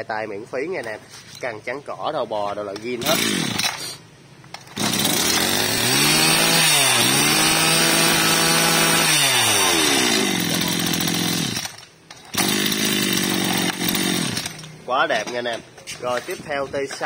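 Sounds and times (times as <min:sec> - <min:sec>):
brush cutter engine revving: 0:02.8 - 0:04.0, 0:04.6 - 0:15.3.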